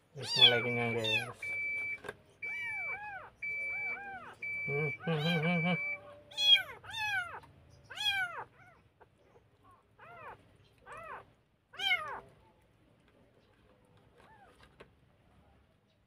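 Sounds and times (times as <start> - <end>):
kitten mewing: 0.2 - 1.4, 2.5 - 8.8, 10.0 - 12.3.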